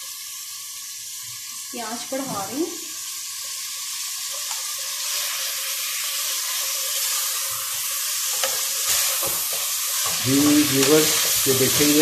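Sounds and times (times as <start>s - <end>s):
meat sizzling in hot oil: 0.0s - 12.0s
spatula stirring: 4.3s - 12.0s.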